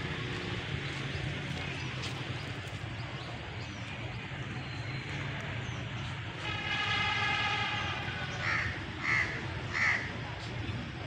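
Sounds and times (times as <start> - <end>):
diesel locomotive rumble: 0.0 - 11.0
locomotive horn blast: 6.3 - 8.9.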